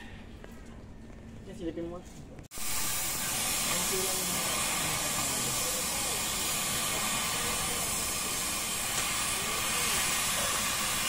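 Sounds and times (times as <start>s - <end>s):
gas torch hissing: 2.5s - 11.0s.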